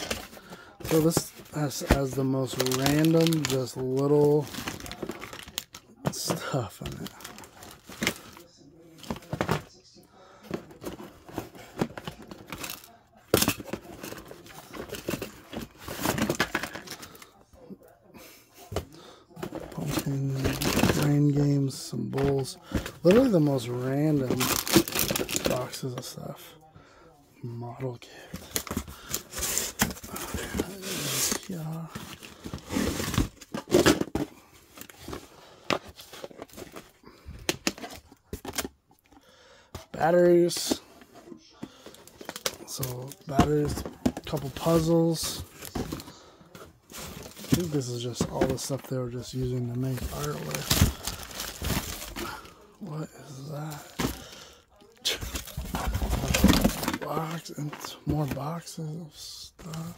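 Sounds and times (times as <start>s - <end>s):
plastic wrap crinkling: 0.0s - 8.4s, 46.9s - 58.4s
contents rustling and scraping: 0.0s - 59.9s.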